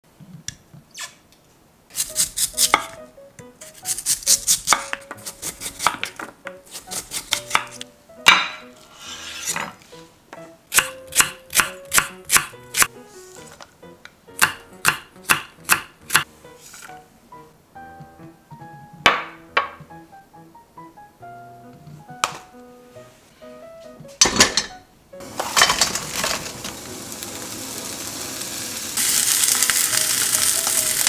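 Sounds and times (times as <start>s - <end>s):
soft background music: 2.0s - 31.0s
knife chopping on wooden board: 4.2s - 8.6s, 14.4s - 16.3s
knife scraping strips onto tray: 8.8s - 9.8s.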